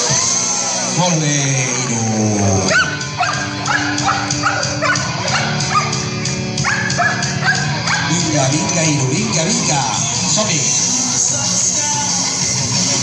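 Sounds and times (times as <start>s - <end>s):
music with steady notes: 0.0s - 13.0s
dog barking and yipping: 2.7s - 8.1s.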